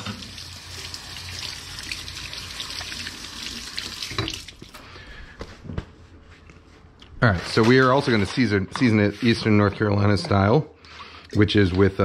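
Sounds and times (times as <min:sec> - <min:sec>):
faucet running into steel sink: 0:00.0 - 0:04.6.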